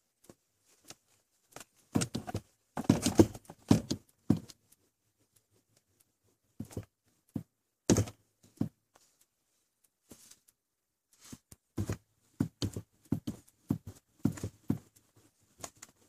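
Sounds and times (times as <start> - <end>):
foot thumping car pedals: 11.8 - 14.9.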